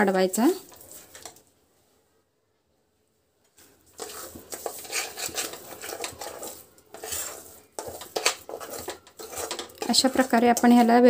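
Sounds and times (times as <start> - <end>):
metal spatula scraping a pan: 3.6 - 11.0.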